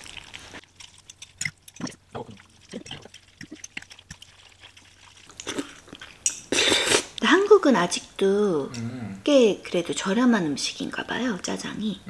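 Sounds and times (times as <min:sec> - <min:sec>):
wet slurping and chewing: 0:00.0 - 0:07.2
utensils clicking on a bowl: 0:00.7 - 0:06.5.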